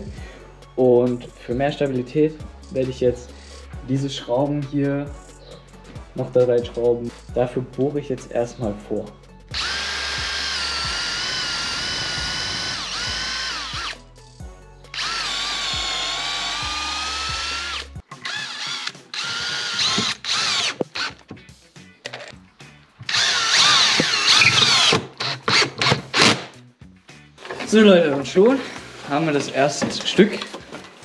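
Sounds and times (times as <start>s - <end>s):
drill driving screws in bursts: 9.5s - 14.0s, 14.9s - 21.2s, 23.1s - 26.5s
electric drill boring into wood: 9.5s - 14.0s, 14.9s - 21.2s, 23.1s - 26.4s.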